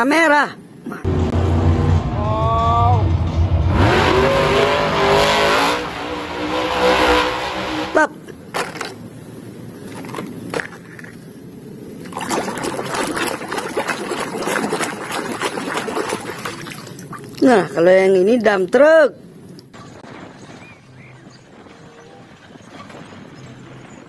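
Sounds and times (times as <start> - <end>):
monster truck engine revving: 1.1 - 8.1
water splashing: 11.9 - 17.9.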